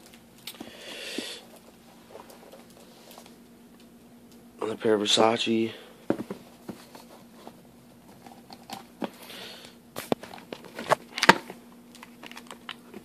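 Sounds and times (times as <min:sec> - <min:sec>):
cardboard and plastic rustling: 0:06.1 - 0:09.2, 0:10.0 - 0:13.0.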